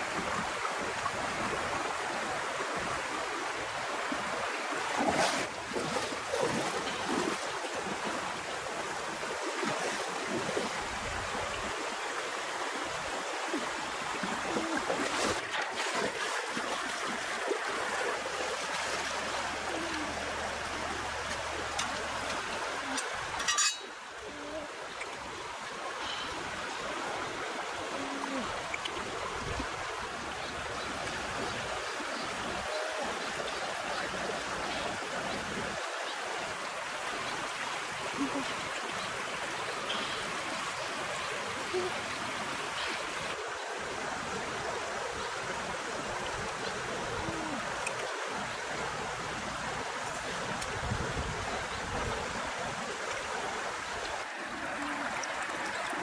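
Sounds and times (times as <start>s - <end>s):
river rushing over stones: 0.0s - 56.0s
sharp water splashes: 4.8s - 7.9s, 14.1s - 19.3s.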